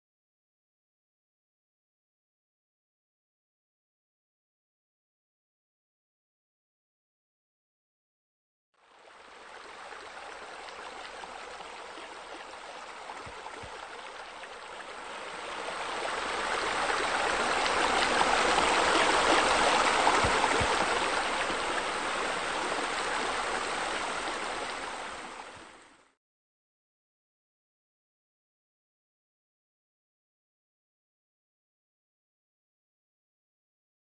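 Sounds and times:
water spilling from waterfall: 8.9s - 26.0s.

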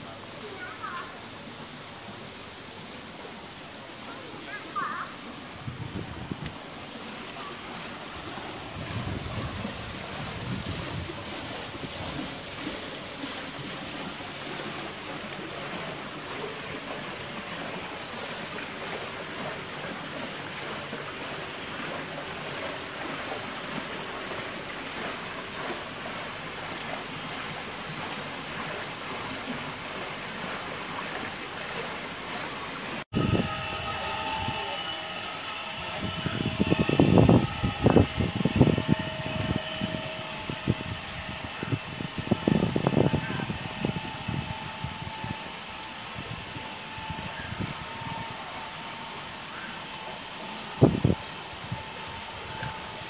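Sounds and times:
steady outdoor hiss: 0.0s - 53.0s
wind buffeting microphone: 5.6s - 6.7s, 8.5s - 12.5s, 33.1s - 34.5s, 35.8s - 45.4s, 50.8s - 51.8s.

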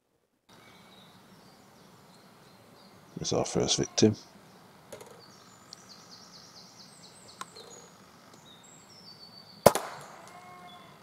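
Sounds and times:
bird chirping: 0.5s - 11.0s
air rifle shot: 9.6s - 10.2s.

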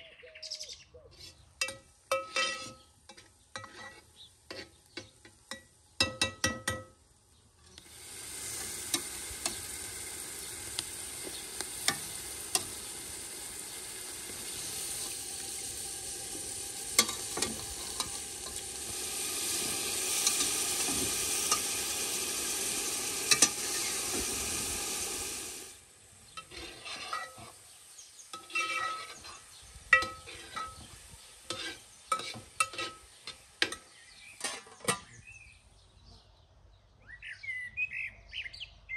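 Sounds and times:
metal spoon scraping a pot: 1.2s - 6.8s, 14.3s - 21.8s, 23.2s - 24.2s, 26.3s - 27.6s, 28.3s - 35.2s
meat and onions sizzling: 1.6s - 35.3s.

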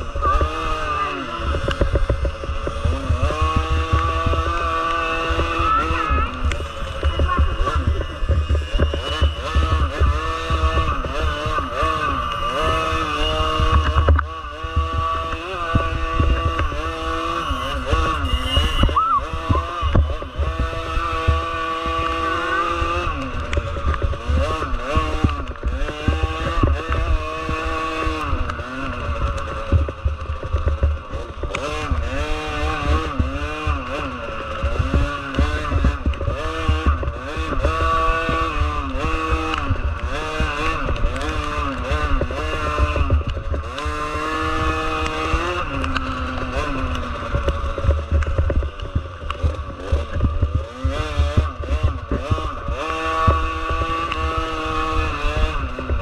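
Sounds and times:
heavy low rumble: 0.0s - 22.6s
motorcycle engines revving: 0.0s - 56.0s.

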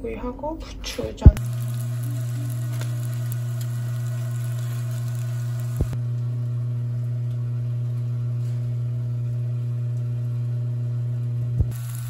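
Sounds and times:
steady low hum: 0.0s - 12.0s
fish sizzling in a frying pan: 1.4s - 6.0s, 11.7s - 12.0s.

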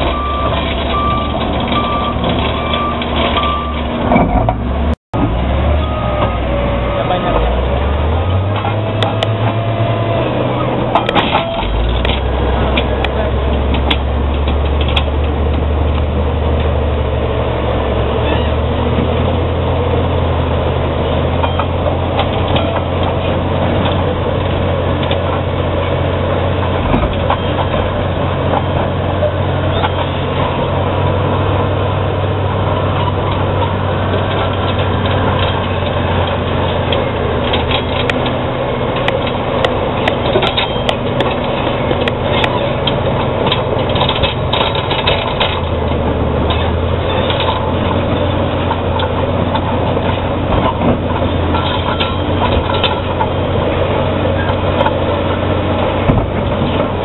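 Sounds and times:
bulldozer diesel engine drone: 0.0s - 57.0s
clanks and cracks of rock: 33.0s - 53.8s.

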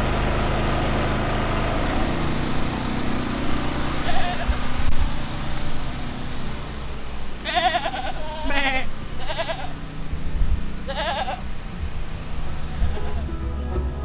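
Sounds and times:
goats bleating: 4.0s - 4.7s, 7.4s - 10.0s, 10.8s - 13.4s.

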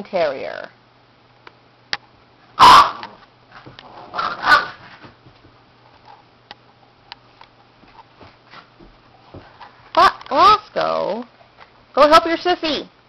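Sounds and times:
dogs vocalising: 2.6s - 3.2s.

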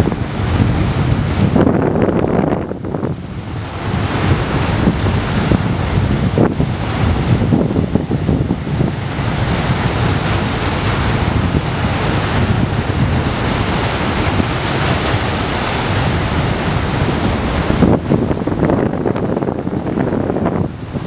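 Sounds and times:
waves splashing against rocks: 0.0s - 21.0s
wind rumbling on microphone: 0.0s - 21.0s.

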